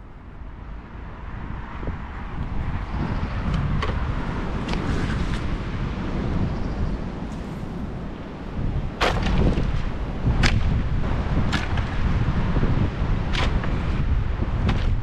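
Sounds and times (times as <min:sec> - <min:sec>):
steady low rumble: 0:00.0 - 0:15.0
sharp knocks: 0:09.0 - 0:10.8, 0:11.5 - 0:11.9, 0:14.6 - 0:15.0.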